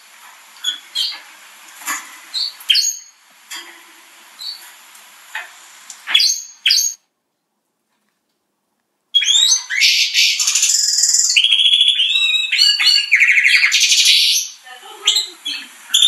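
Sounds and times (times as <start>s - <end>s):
canary chirps: 0.6s - 1.3s, 2.0s - 3.3s, 4.3s - 4.8s, 5.4s - 7.1s, 9.1s - 16.0s
canary twittering trills: 0.6s - 1.3s, 2.2s - 3.2s, 4.4s - 4.7s, 6.0s - 7.0s, 9.1s - 16.0s.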